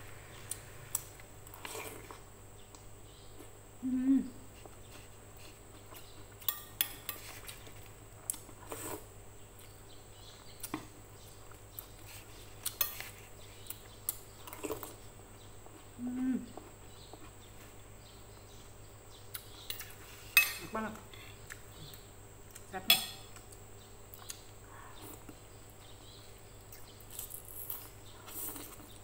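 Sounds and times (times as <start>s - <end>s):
cutlery clinking on a plate: 20.4s - 20.7s, 22.9s - 23.3s.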